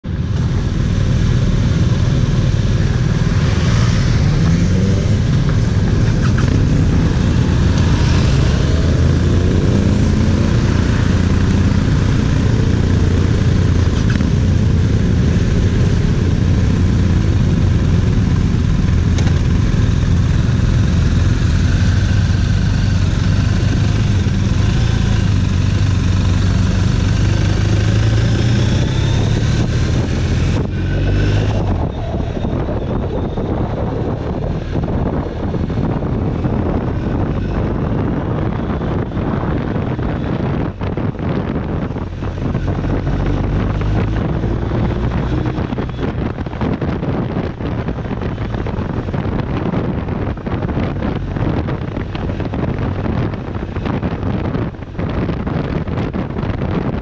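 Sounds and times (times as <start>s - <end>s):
motorcycle engine revving: 0.4s - 56.8s.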